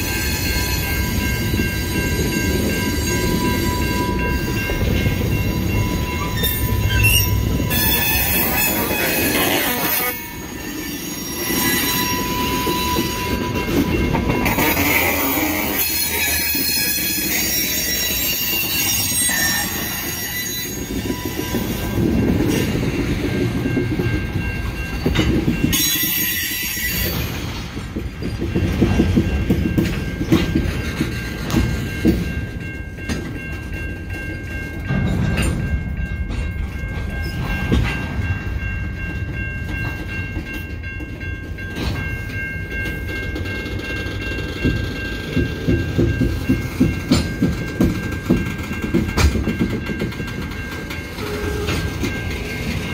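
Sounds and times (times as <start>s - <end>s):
train wheels squealing on rails: 0.0s - 52.9s
wheel clacks over rail joints: 27.0s - 52.9s.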